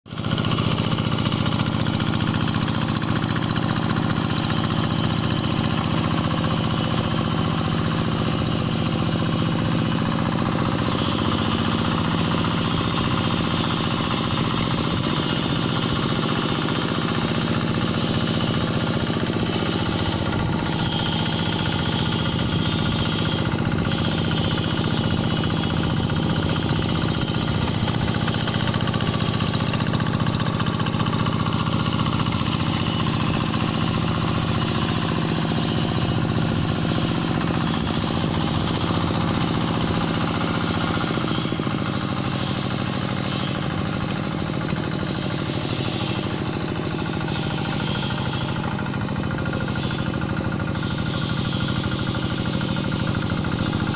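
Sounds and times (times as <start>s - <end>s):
diesel engine running under load: 0.0s - 53.9s.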